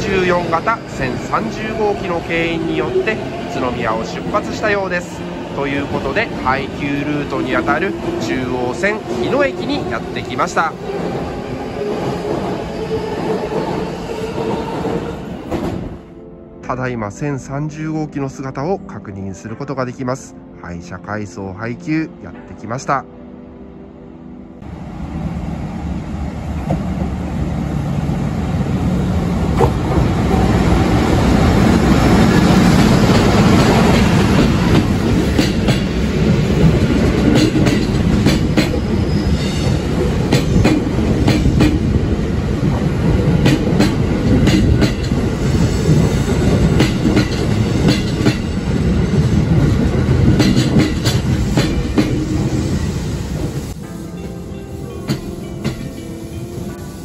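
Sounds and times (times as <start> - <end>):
train rolling noise: 0.0 - 16.2, 24.6 - 57.0
wheels clacking over rail joints: 31.0 - 39.0, 49.6 - 52.2.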